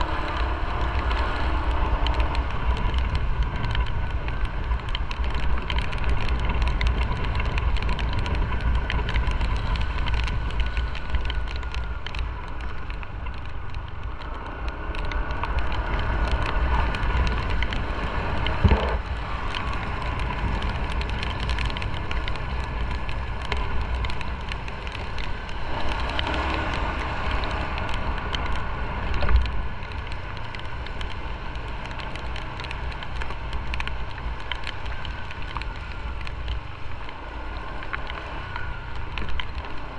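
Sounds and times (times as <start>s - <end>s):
raindrops ticking on camera: 0.0s - 39.9s
motorcycle engine running: 17.8s - 20.6s.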